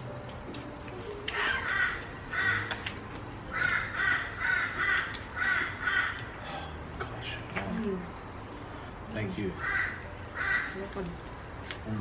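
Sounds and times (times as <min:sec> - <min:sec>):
crow cawing: 0:01.4 - 0:02.8, 0:03.5 - 0:06.6, 0:09.5 - 0:10.9.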